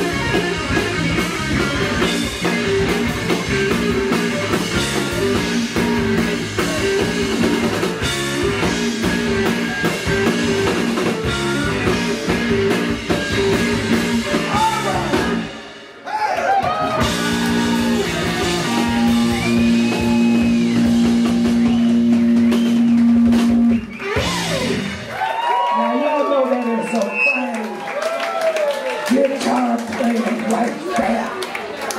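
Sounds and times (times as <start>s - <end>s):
electric guitar: 0.0s - 15.9s, 16.6s - 25.7s
drum kit: 0.0s - 25.6s.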